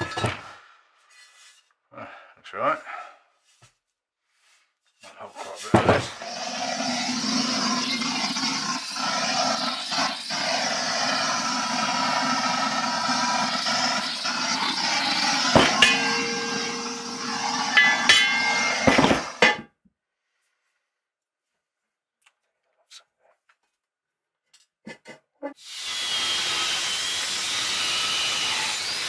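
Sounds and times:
gas blowtorch hissing: 6.0s - 19.6s.

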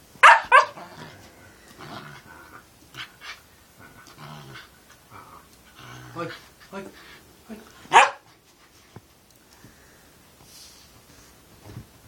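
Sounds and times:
puppy growling: 0.6s - 7.8s.

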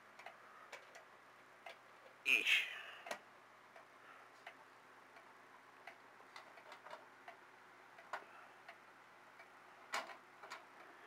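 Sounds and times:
wall clock ticking: 3.0s - 11.0s.

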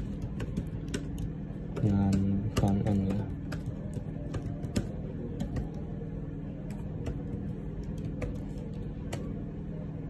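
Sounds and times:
keyboard keystrokes: 0.0s - 5.8s
steady low hum: 0.0s - 10.0s.

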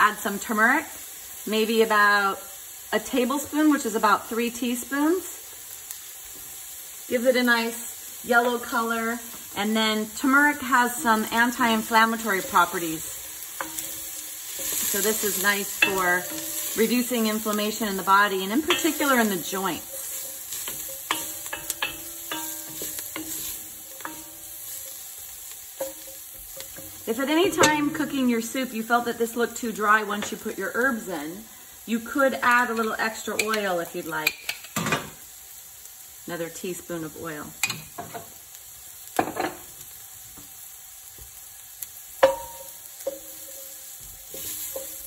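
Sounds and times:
vegetables sizzling in oil: 0.0s - 45.0s
wooden spoon scraping pot: 10.8s - 17.6s
wooden spoon knocking pot: 19.8s - 24.4s.

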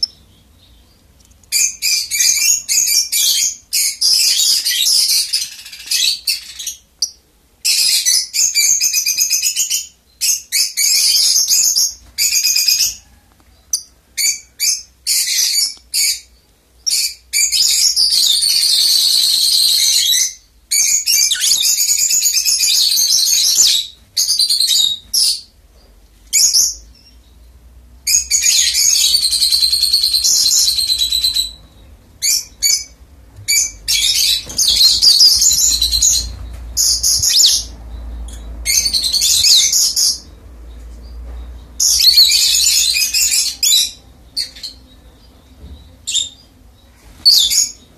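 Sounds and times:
lovebirds chattering: 19.7s - 47.9s.

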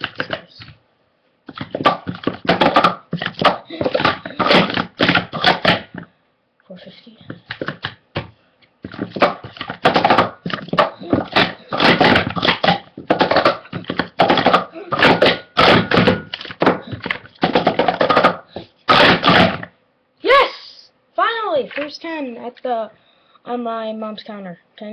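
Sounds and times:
plastic cups clattering: 1.5s - 6.0s, 8.8s - 19.6s.

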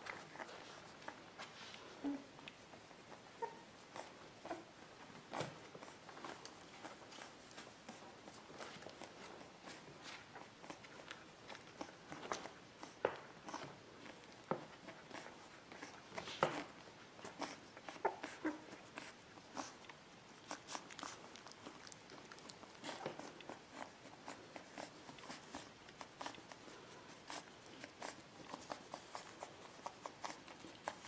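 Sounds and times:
puppy whimpering softly: 0.0s - 31.0s
puppy mouth clicks and smacks: 19.8s - 26.6s.

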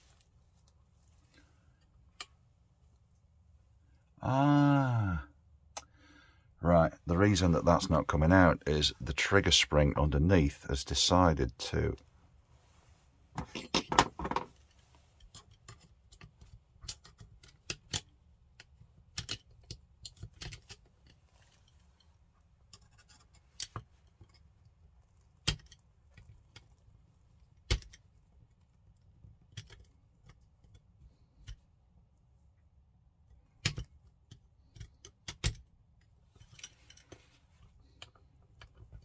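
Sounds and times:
tools and rifle parts clicking: 15.2s - 22.1s, 22.7s - 24.5s, 29.4s - 30.8s.

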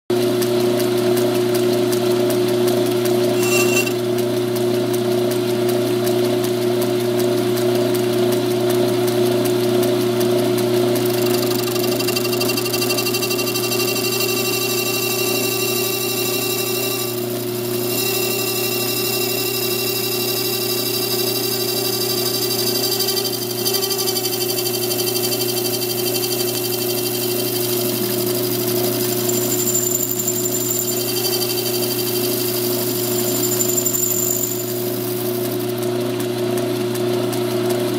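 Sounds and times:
lathe running: 2.9s - 4.0s, 9.9s - 35.9s.

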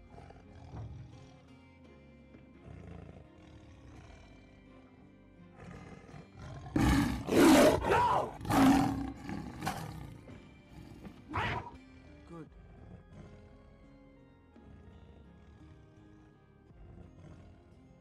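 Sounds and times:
tiger roaring and snarling: 0.0s - 1.5s, 2.6s - 4.4s, 5.5s - 11.8s, 12.7s - 13.7s, 16.9s - 17.8s.

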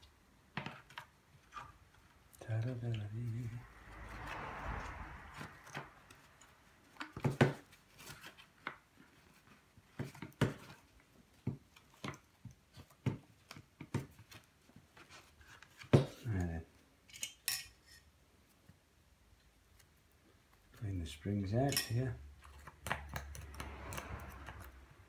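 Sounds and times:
rustling scrape: 3.3s - 9.8s, 14.2s - 15.9s.

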